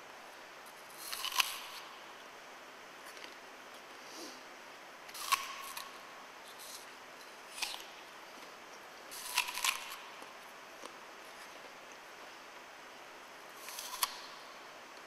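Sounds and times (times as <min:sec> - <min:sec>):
faint steady hiss: 0:00.0 - 0:15.0
apple being bitten and chewed: 0:00.7 - 0:02.1, 0:05.1 - 0:12.6, 0:13.5 - 0:15.0.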